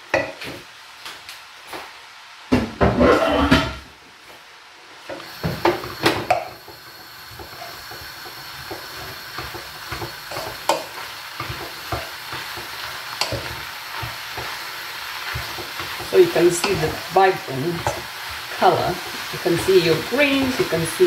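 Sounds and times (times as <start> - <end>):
food sizzling in fat: 0.0 - 21.0
wooden spoon scraping a pan: 2.8 - 3.8, 5.2 - 21.0.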